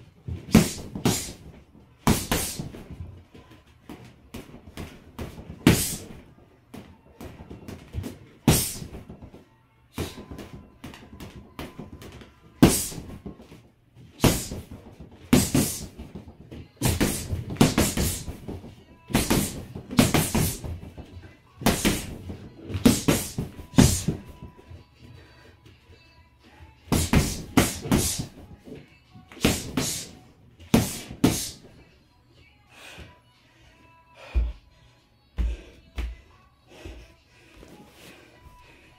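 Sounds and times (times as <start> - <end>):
gloved punches on punching bag: 0.4 - 3.0, 4.3 - 24.6, 26.9 - 28.6, 29.3 - 31.7.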